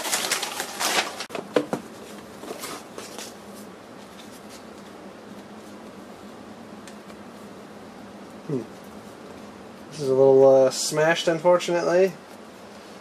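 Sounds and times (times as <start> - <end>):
paper packing crackling: 0.0 - 1.4, 2.0 - 4.8
faint steady hum: 0.0 - 13.0.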